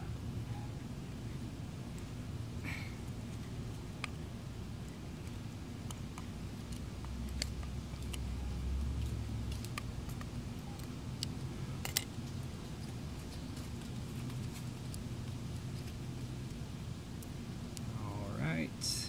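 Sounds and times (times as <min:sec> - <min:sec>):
screwdriver metal clicks and scrapes: 0:09.5 - 0:12.1.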